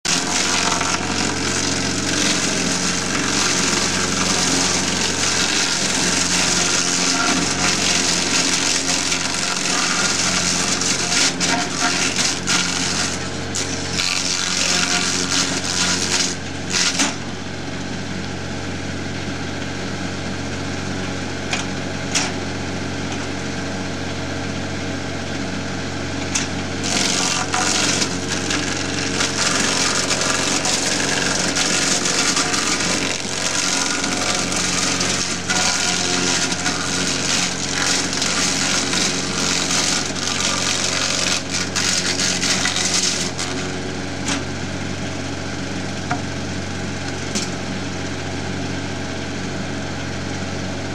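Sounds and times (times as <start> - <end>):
machine rasping cutting bark: 0.0 - 17.6, 25.4 - 50.9
engine hum: 0.0 - 50.9.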